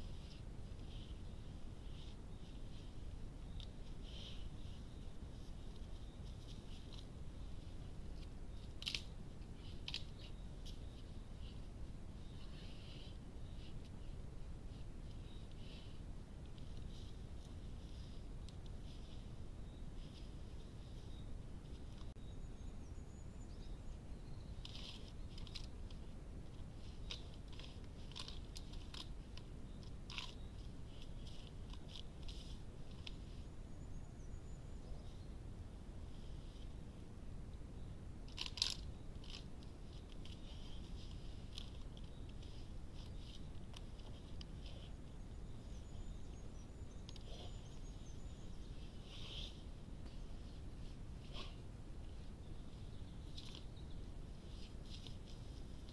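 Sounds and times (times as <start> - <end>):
microphone hiss and rumble: 0.0 - 55.9
bear scraping bark: 48.9 - 49.6, 51.2 - 51.6.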